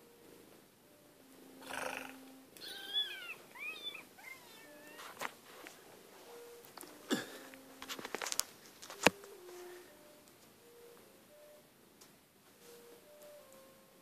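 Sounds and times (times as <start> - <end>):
cat mewing: 1.6 - 5.1.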